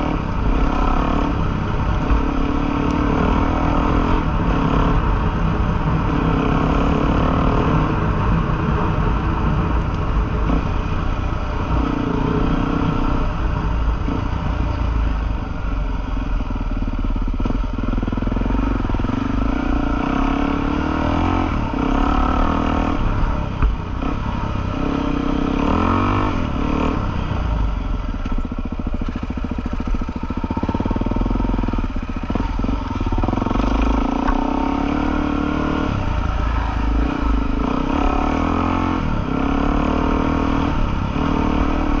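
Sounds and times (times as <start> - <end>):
motorcycle engine revving: 0.0 - 42.0.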